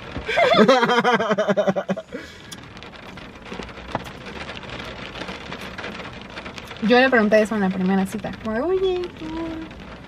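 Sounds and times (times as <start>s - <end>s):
person laughing: 0.2s - 2.2s.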